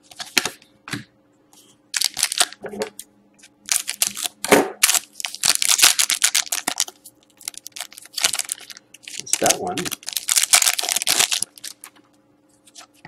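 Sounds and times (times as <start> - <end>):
foil wrapper crinkling: 2.0 - 2.6, 3.7 - 13.0.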